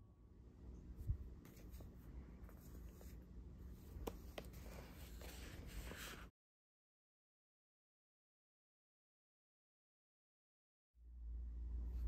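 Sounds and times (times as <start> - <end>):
paper pages rustling: 1.4 - 3.2, 3.8 - 6.3.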